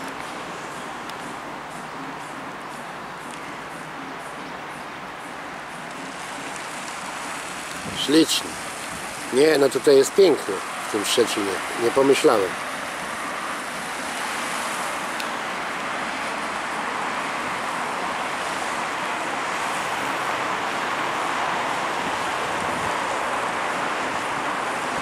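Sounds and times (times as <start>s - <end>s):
traffic tyres on wet road: 0.0s - 25.0s.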